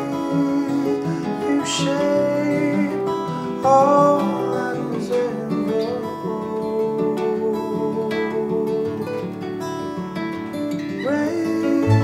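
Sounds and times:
fingerpicked acoustic guitar: 0.0 - 12.0
bending held melody line: 10.7 - 12.0.

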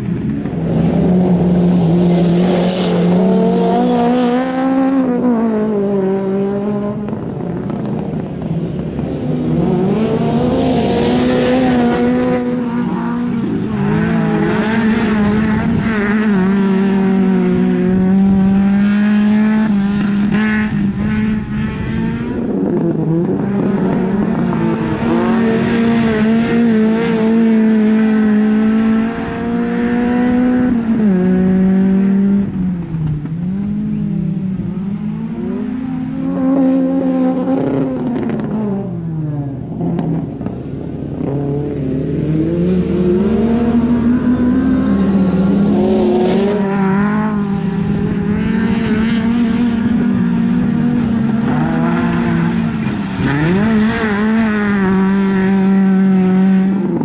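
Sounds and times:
race car engines revving hard: 0.0 - 57.0.

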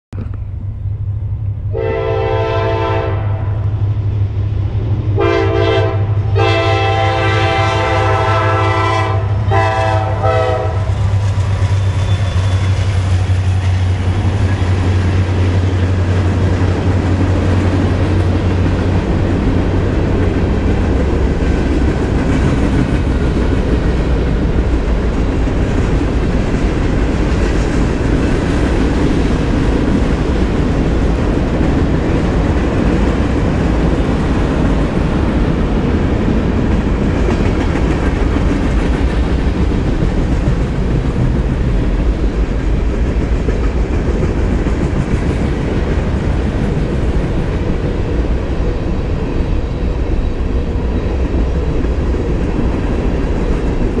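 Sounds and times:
freight cars rumbling on rails: 0.1 - 54.0
low drone of locomotive engines: 0.2 - 54.0
train air horn blasts: 1.7 - 3.6, 5.2 - 11.0.

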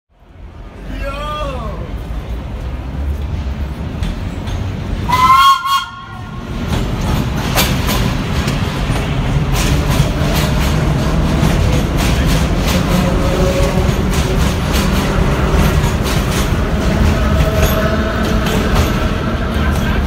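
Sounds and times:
subway train passing: 0.1 - 20.0
wheels clicking over rail joints: 2.6 - 20.0
train horn blast: 5.1 - 6.4.

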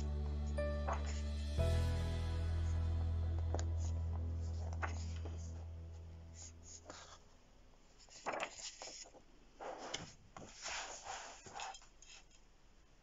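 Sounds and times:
magazine pages turning: 0.8 - 1.5, 2.6 - 11.9
hand brushing across cover: 8.0 - 12.0.

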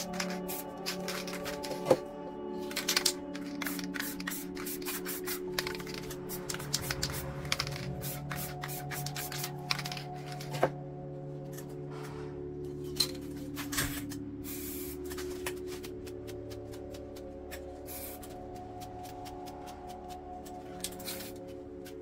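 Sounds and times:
spray paint hissing: 0.0 - 1.4, 2.8 - 10.0, 14.4 - 15.2, 17.6 - 18.4, 21.0 - 21.4
background music: 0.0 - 22.0.

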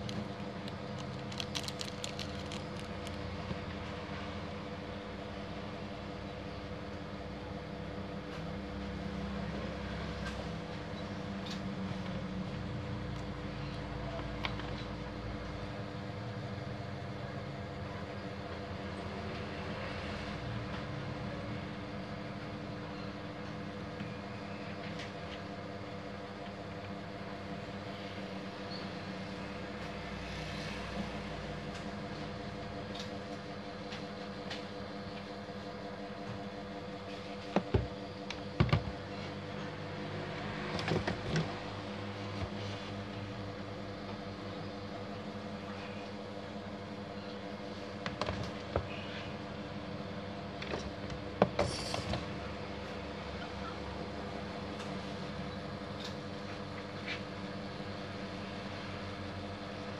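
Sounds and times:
plastic parts clicking: 0.0 - 3.2
steady hum: 0.0 - 59.9.

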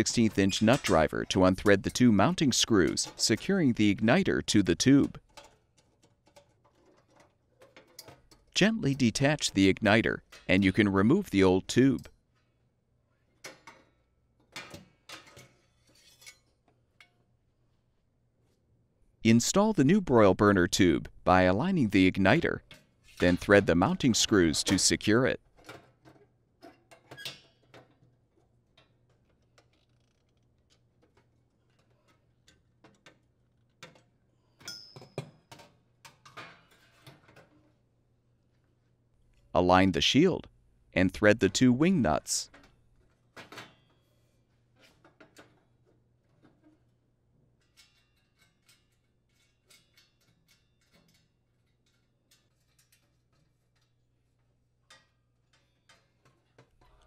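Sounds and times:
faint clicks and metal taps: 47.6 - 56.8.

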